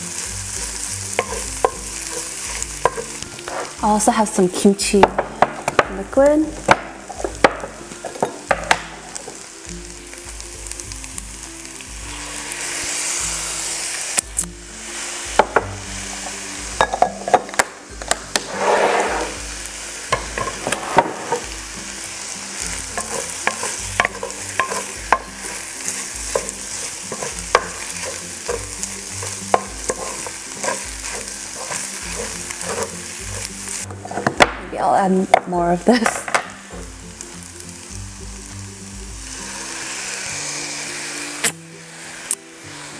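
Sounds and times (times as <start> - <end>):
rice sizzling in frying pan: 0.0 - 42.9
spatula tapping pan: 1.1 - 3.3, 5.0 - 9.0, 20.1 - 21.5, 22.7 - 34.6
wooden spatula scraping pan: 1.1 - 4.7, 18.3 - 19.4, 20.2 - 21.5, 22.9 - 34.4.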